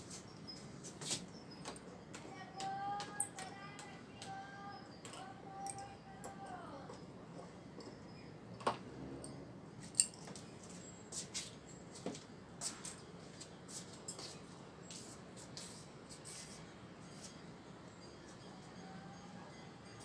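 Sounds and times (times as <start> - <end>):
metallic clink: 5.1 - 6.0, 9.2 - 10.5.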